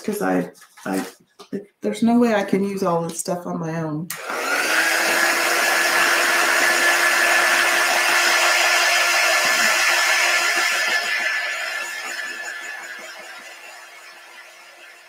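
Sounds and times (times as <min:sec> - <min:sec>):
heat gun fan whirring: 0:04.1 - 0:15.0.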